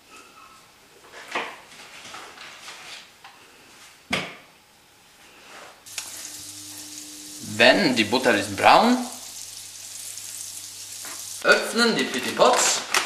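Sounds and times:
butter sizzling in a frying pan: 5.9 - 12.8
foil wrapper crinkling: 12.0 - 13.0.

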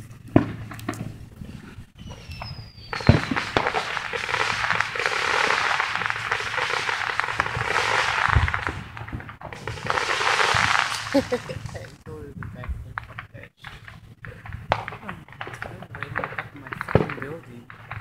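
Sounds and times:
firework bang: 0.0 - 18.0
fireworks crackling: 0.0 - 18.0
firework thump: 0.3 - 18.0
firework whistle falling: 2.0 - 9.0, 9.6 - 12.0.

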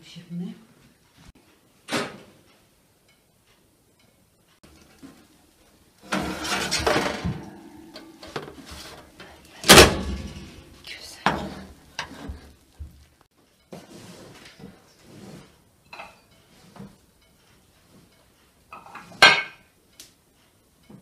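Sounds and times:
metal pan clanking: 6.0 - 12.4.

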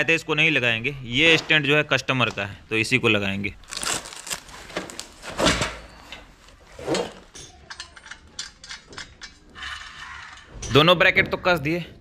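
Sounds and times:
metal brackets scraping: 5.3 - 11.0
metal parts and tools clicking: 7.3 - 10.8.

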